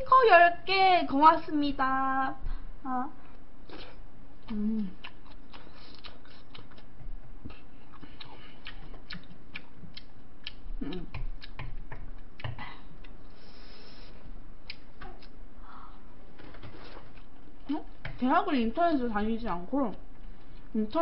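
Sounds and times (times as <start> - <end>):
person humming: 4.4 - 5.1, 10.7 - 11.3
eating clicks: 7.5 - 13.2.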